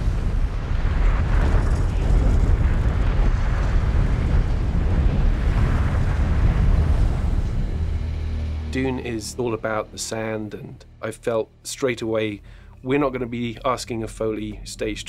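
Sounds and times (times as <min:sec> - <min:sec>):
desert wind rumble and hiss: 0:00.0 - 0:10.4.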